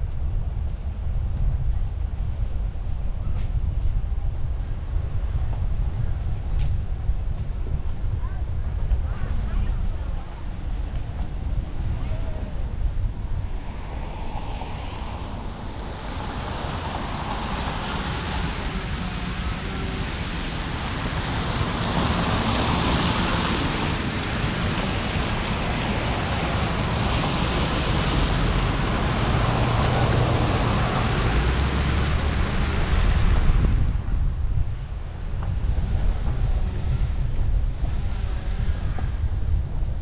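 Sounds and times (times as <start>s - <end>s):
wind buffeting microphone: 0.0s - 40.0s
tyres hissing on wet pavement: 13.4s - 34.1s.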